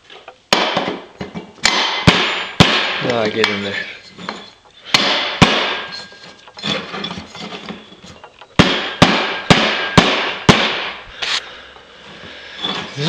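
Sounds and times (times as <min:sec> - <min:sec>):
hammer striking metal: 0:01.6 - 0:03.7, 0:04.3 - 0:06.8, 0:08.6 - 0:11.0
light knocking and scraping: 0:05.9 - 0:08.6.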